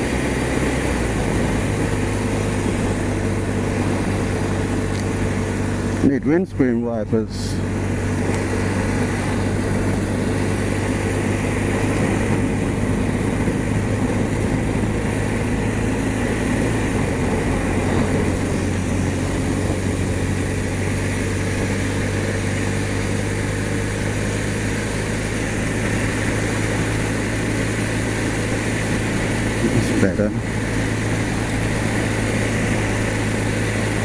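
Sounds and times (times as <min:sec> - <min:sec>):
motorcycle engine running: 0:00.0 - 0:34.0
wet road noise: 0:00.0 - 0:34.0
wind rushing: 0:07.6 - 0:34.0.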